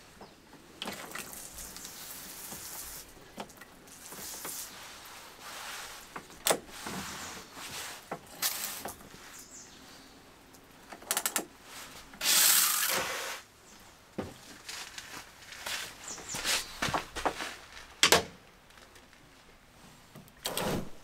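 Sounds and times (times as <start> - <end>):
loud hiss: 11.8 - 13.5.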